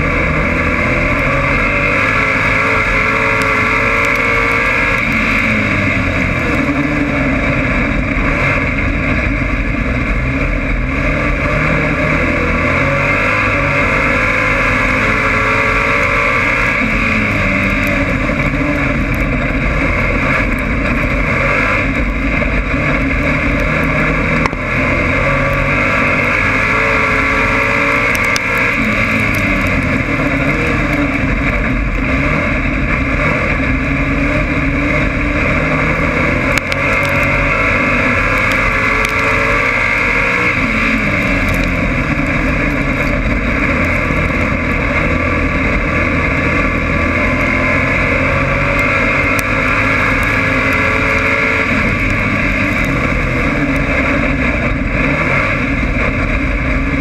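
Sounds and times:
race car engine running hard: 0.0 - 57.0.

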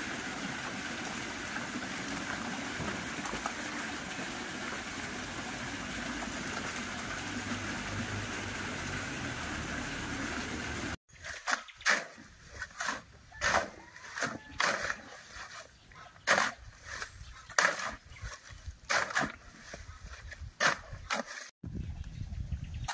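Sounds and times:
water splashing in pond: 0.0 - 11.0.

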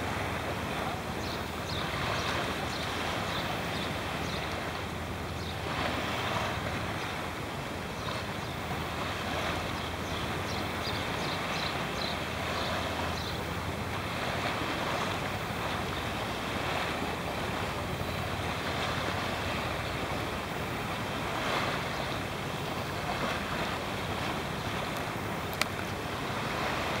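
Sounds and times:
small waves splashing: 0.0 - 27.0
sharp click: 25.5 - 25.9.

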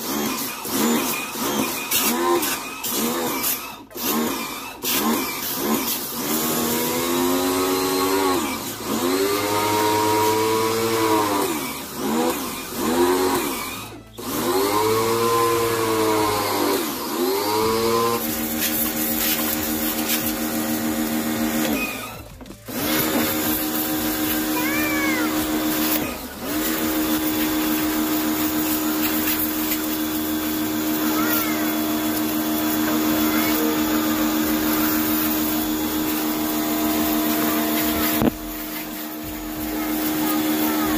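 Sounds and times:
pressure washer motor running: 0.0 - 40.9
water spray hissing: 18.0 - 40.9.

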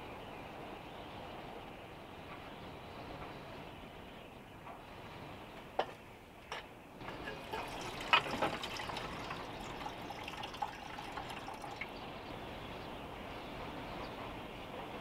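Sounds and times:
water pouring into metal kettle: 7.0 - 12.1.

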